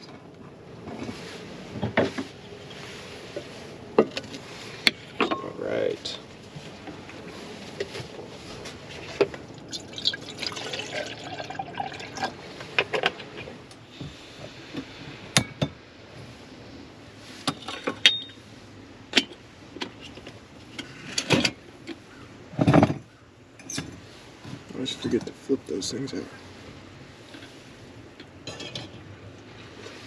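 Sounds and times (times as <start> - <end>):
water pouring into kettle: 9.7 - 12.3.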